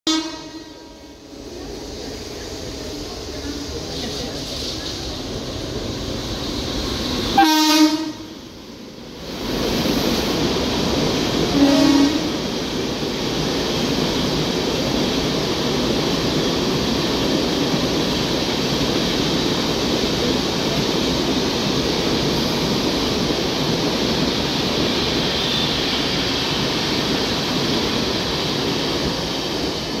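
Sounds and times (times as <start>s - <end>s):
train horn blast: 0.1s - 1.2s, 7.4s - 8.3s, 11.5s - 12.4s
train wheels rolling on rails: 0.2s - 30.0s.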